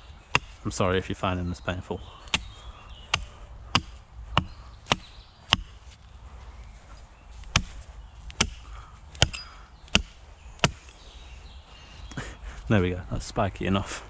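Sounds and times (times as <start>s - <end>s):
hatchet chopping wooden stake: 0.3s - 0.6s, 2.2s - 6.0s, 7.4s - 11.0s.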